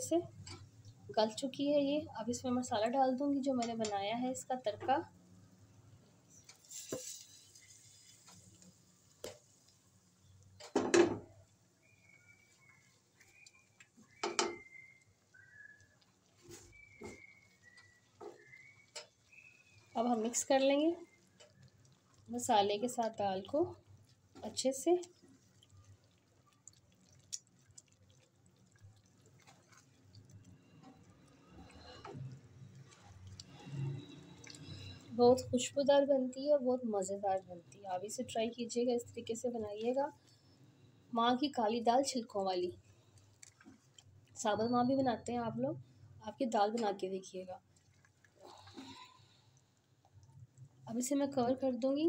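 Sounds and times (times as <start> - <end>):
liquid sloshing in a pot: 2.4 - 36.2, 41.5 - 51.9
faint high whistling tones: 11.8 - 20.0.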